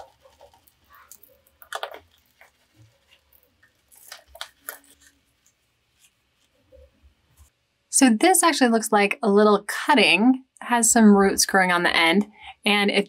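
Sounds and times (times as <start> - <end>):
hands handling potting soil: 0.0 - 7.5.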